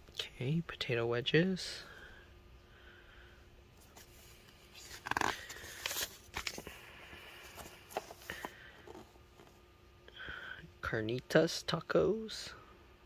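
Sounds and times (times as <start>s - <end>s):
paper page rustling: 3.8s - 6.7s, 7.4s - 9.6s.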